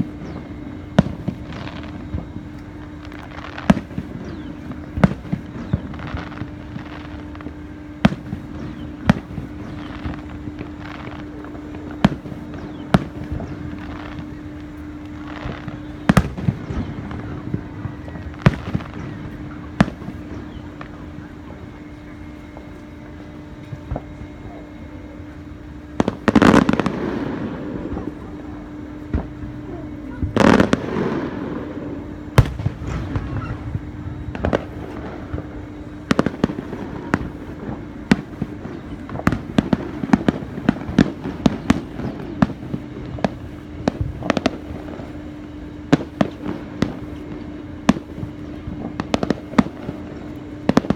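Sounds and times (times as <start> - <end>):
fireworks booming and crackling: 0.0 - 50.9
low hum: 0.0 - 50.9
rapid sharp bangs and pops: 32.4 - 50.9.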